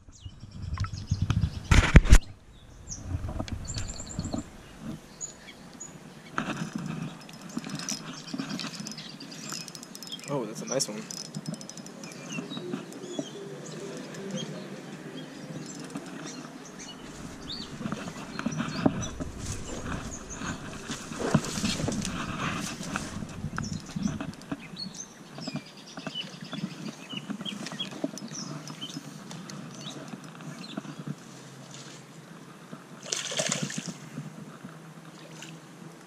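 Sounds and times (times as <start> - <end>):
rustling and scuffing: 16.2 - 25.6.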